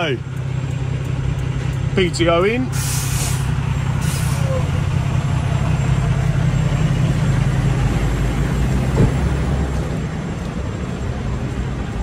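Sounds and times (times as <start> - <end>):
diesel truck engine running: 0.0 - 12.0.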